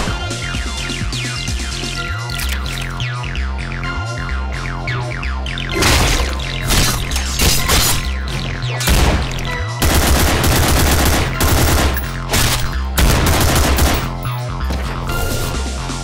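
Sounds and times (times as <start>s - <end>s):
music with steady bass: 0.0s - 16.0s
automatic gunfire sound effects: 8.9s - 14.3s.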